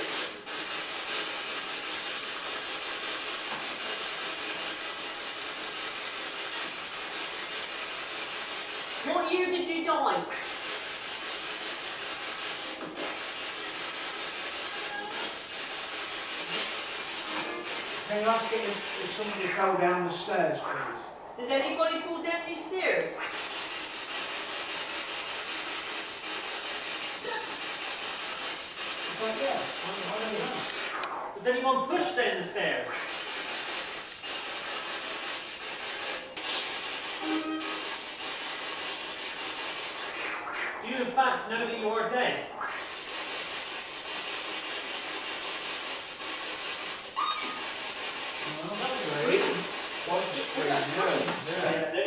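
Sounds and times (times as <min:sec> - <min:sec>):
radio static hiss: 0:00.0 - 0:52.0
voice-like fragment: 0:18.1 - 0:22.1.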